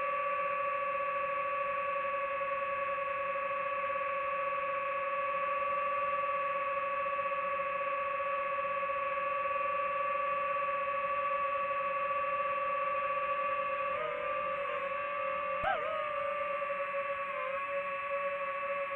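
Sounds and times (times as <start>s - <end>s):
drone propellers whining: 13.9s - 18.6s.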